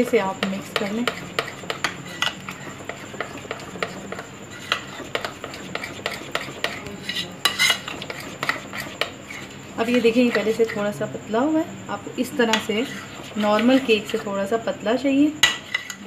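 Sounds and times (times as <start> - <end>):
metal spoon scraping glass bowl: 0.4 - 10.8, 12.5 - 14.3, 15.4 - 16.0.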